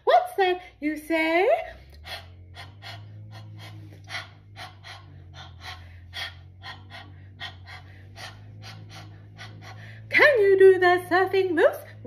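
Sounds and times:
low steady hum: 0.0s - 12.0s
person panting: 1.7s - 10.2s.

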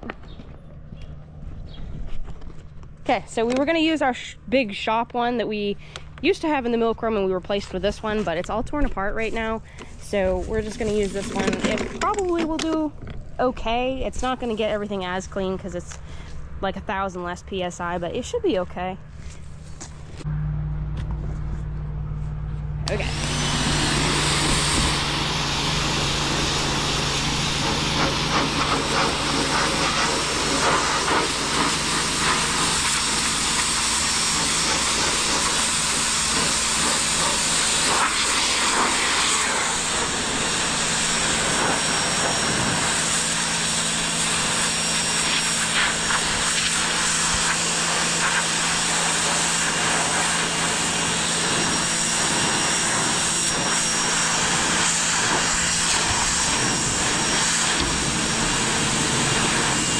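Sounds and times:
pressure washer motor hum: 5.6s - 16.1s, 19.2s - 59.9s
high-pressure water jet hissing: 22.9s - 59.9s.

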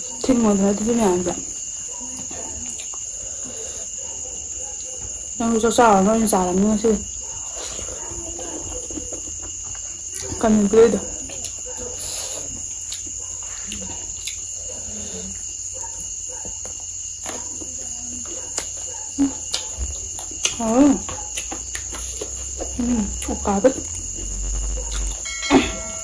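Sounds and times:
insects trilling: 0.0s - 26.0s.

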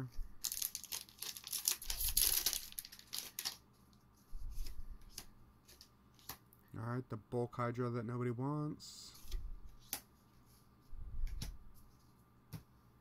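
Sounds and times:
foil wrapper tearing and crinkling: 0.4s - 3.6s.

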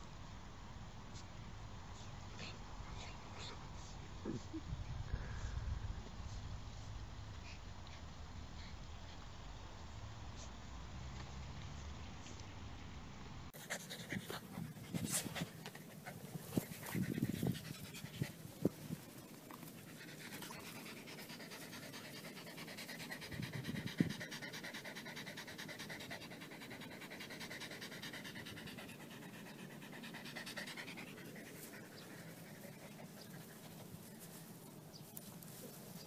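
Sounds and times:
dog panting: 13.6s - 34.4s.

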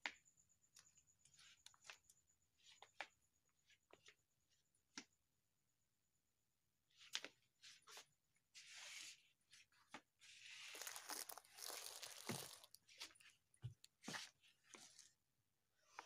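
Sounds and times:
plastic bags crinkling: 10.7s - 12.8s.

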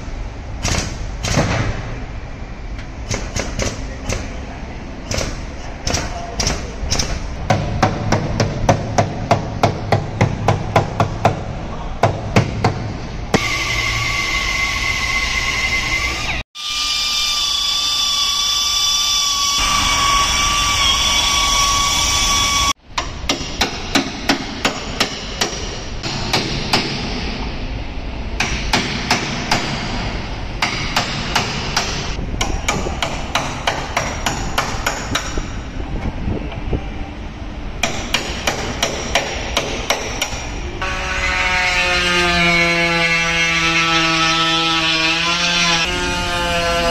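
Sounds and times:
air tool whine: 13.4s - 22.8s
hammer striking steel: 19.6s - 27.5s, 28.4s - 35.6s, 37.8s - 40.6s.

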